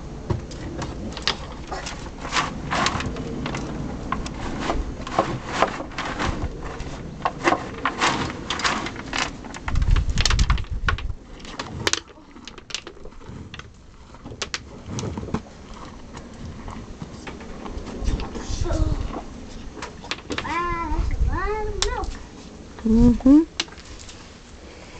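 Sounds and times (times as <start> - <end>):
cow crunching feed: 0.1 - 18.4.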